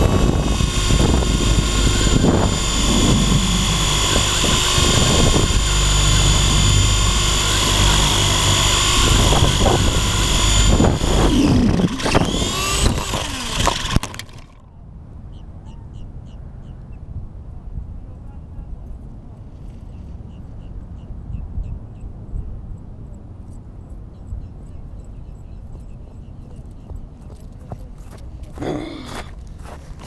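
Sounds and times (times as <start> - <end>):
wind buffeting: 0.0 - 14.3
helicopter motor and rotor whining: 0.0 - 14.6.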